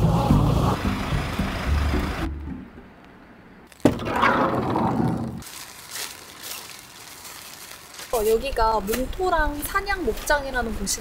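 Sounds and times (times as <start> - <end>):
background music: 0.0 - 3.0
plastic poncho rustling: 5.4 - 9.7.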